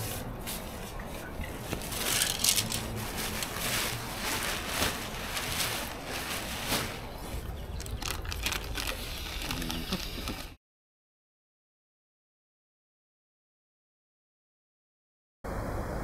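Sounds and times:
bicycle bags rattling and clicking: 0:01.6 - 0:10.6
bicycle rumbling over rough ground: 0:01.7 - 0:10.6.

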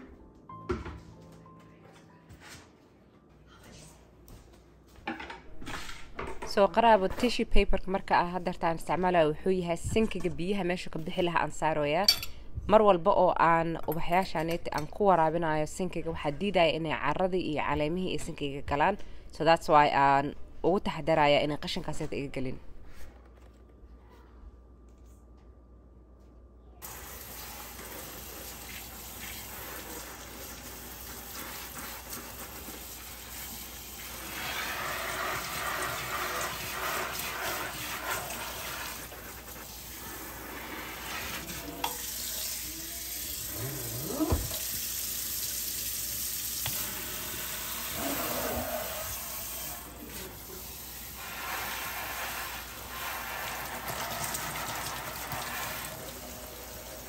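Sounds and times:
faucet sprayer water pouring in sink: 0:26.8 - 0:43.6, 0:44.3 - 0:57.0.

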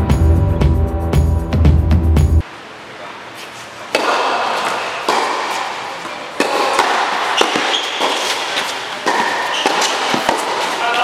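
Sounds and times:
ball bouncing on hard court: 0:03.9 - 0:11.0
racket hitting tennis ball: 0:03.9 - 0:11.0.

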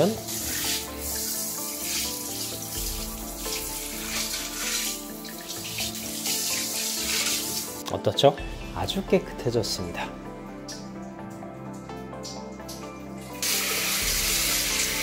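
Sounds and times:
background music: 0:00.0 - 0:15.0
shower head spraying into a sink: 0:00.3 - 0:07.7, 0:13.4 - 0:15.0.

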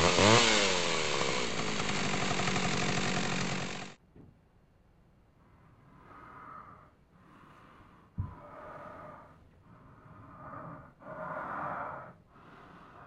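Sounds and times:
man breathing heavily: 0:05.4 - 0:13.0.

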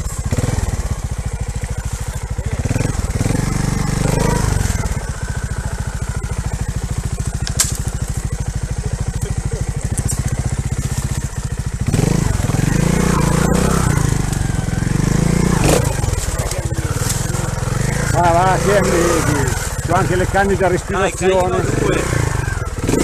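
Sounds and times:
engine throttle blips: 0:00.0 - 0:23.0
motorcycle engine idling: 0:00.0 - 0:23.0.

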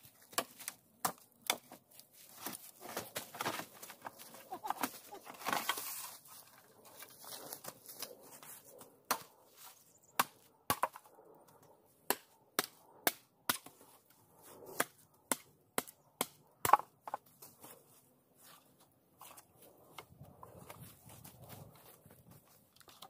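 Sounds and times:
machete chopping wood: 0:09.1 - 0:09.3, 0:10.2 - 0:11.1, 0:12.0 - 0:13.8, 0:14.8 - 0:17.2.

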